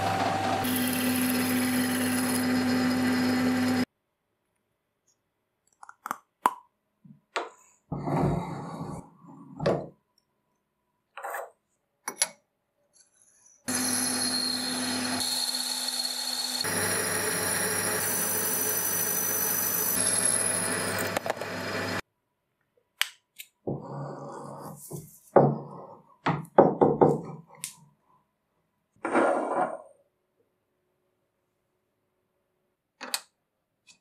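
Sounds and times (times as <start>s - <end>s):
metal lathe whining: 0.0s - 3.8s, 13.7s - 22.0s.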